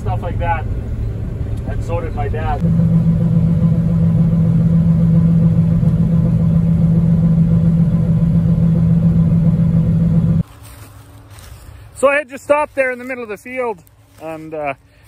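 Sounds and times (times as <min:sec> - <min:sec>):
combine harvester mechanical drone: 0:00.0 - 0:10.5.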